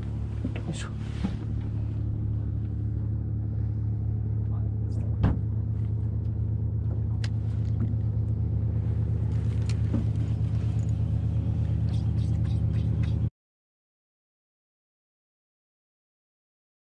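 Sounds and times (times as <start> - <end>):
boat engine humming: 0.0 - 13.3.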